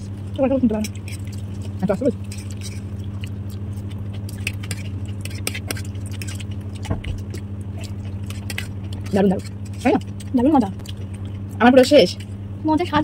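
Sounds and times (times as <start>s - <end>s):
steady low hum: 0.0s - 13.0s
fork scraping ceramic plates: 0.7s - 3.0s, 4.2s - 6.8s, 7.8s - 10.5s.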